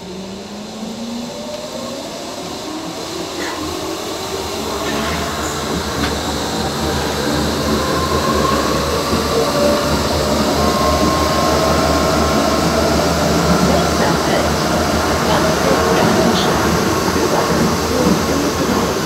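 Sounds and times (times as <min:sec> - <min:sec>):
train wheels rumbling: 0:00.0 - 0:19.0
faint high whine: 0:02.4 - 0:08.3.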